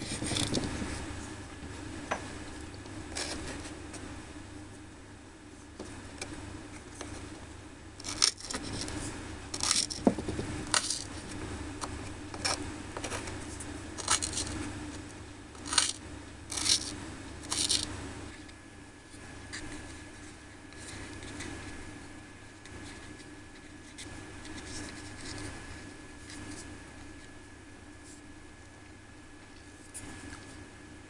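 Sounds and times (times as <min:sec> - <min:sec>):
knife scraping board: 0:08.0 - 0:09.0, 0:09.6 - 0:10.1, 0:14.0 - 0:14.6, 0:15.6 - 0:17.9.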